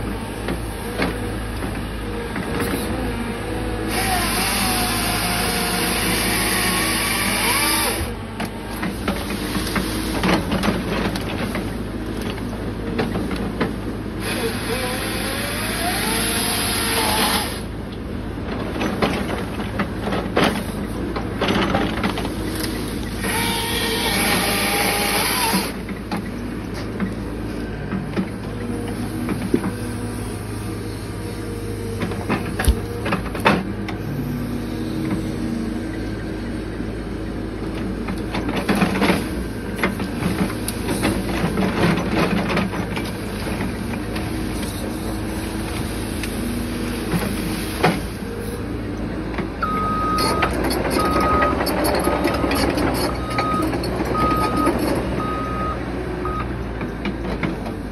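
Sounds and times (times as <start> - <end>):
excavator diesel engine: 0.0 - 57.9
saw cutting through brush: 3.8 - 8.2, 23.2 - 25.8.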